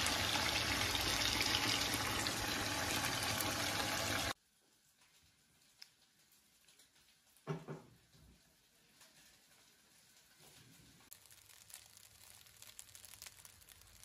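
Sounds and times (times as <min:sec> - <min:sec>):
food sizzling in a frying pan: 0:00.0 - 0:04.4, 0:05.6 - 0:14.0.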